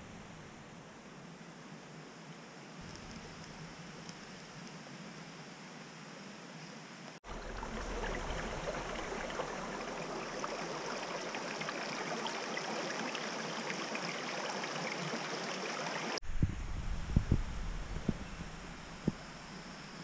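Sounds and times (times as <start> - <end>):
creek babbling over stones: 7.2 - 16.2.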